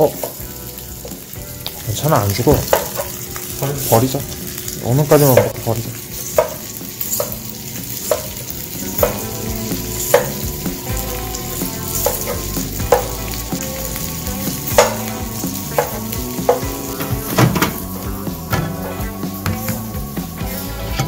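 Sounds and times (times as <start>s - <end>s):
food sizzling in frying pan: 0.0s - 21.0s
wooden spatula knocking on pan: 2.5s - 3.2s, 5.3s - 5.6s, 6.3s - 7.4s, 8.0s - 8.4s, 9.0s - 9.3s, 10.0s - 10.9s, 12.0s - 13.3s, 14.6s - 17.8s, 19.4s - 19.9s.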